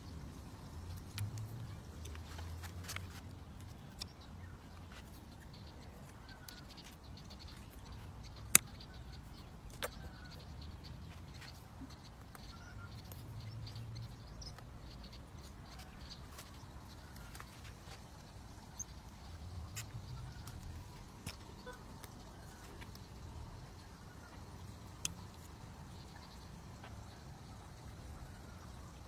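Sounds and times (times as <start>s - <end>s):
faint bird chirps: 0.0s - 29.0s
cutters snipping twigs: 0.8s - 23.2s, 24.9s - 25.6s.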